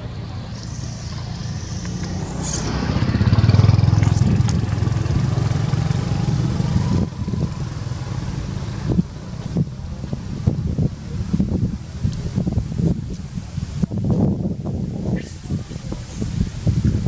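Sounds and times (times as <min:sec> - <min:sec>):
vehicle engine passing by: 0:00.0 - 0:12.5.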